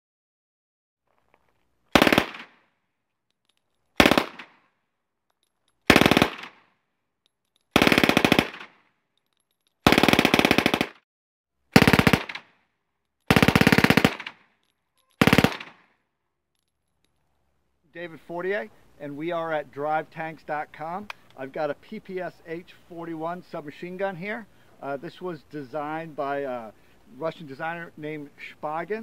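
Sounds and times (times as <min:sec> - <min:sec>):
submachine gun firing bursts: 0:01.9 - 0:02.6, 0:04.0 - 0:04.6, 0:05.9 - 0:06.6, 0:07.7 - 0:08.8, 0:09.8 - 0:11.0, 0:11.8 - 0:12.5, 0:13.3 - 0:14.4, 0:15.2 - 0:15.8.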